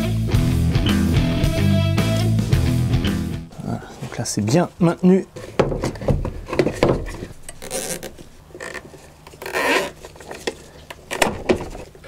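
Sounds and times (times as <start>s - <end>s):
cable tie zipping rasps: 7.5s - 10.4s.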